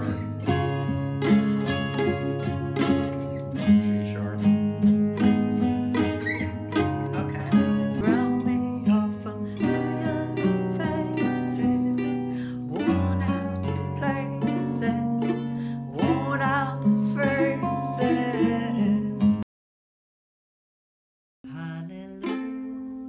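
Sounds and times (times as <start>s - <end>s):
ukulele strumming: 0.0s - 19.4s, 21.6s - 23.0s
woman singing: 6.4s - 19.4s, 21.4s - 22.9s.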